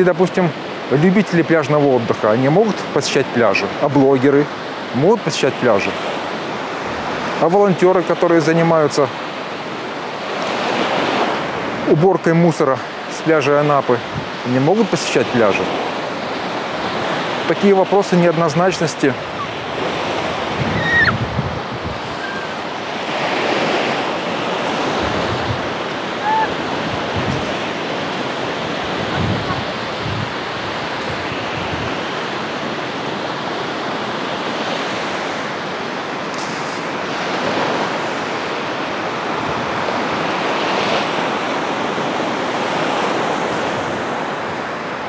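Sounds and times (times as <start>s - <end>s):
surf breaking on beach: 0.0s - 45.0s
wind buffeting microphone: 14.0s - 14.5s, 19.0s - 33.5s, 36.9s - 40.5s.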